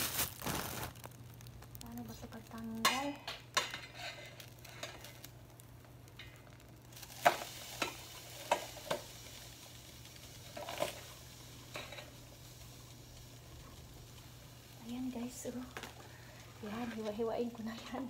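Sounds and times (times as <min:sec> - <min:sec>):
knife scraping frying pan: 0:03.6 - 0:05.1.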